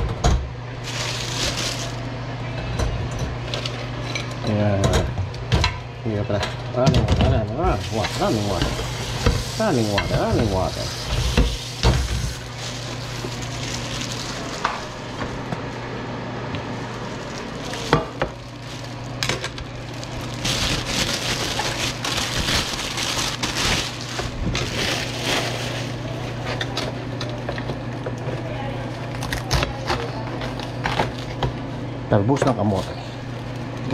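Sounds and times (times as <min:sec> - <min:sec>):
plastic bag rustling: 0:00.8 - 0:02.1, 0:07.7 - 0:15.9, 0:16.5 - 0:26.5
tap water running: 0:07.7 - 0:15.6.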